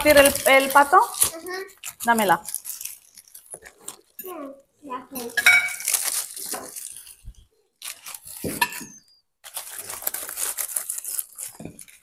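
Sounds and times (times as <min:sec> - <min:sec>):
cutlery and plates clinking: 0:05.2 - 0:05.9, 0:08.4 - 0:09.0.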